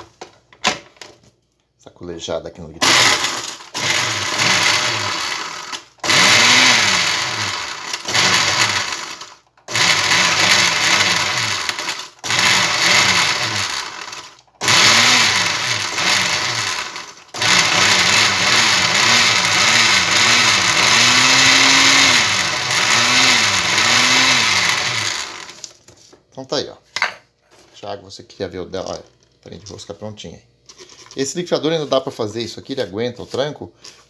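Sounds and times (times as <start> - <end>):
blender motor grinding bread: 2.8 - 25.8.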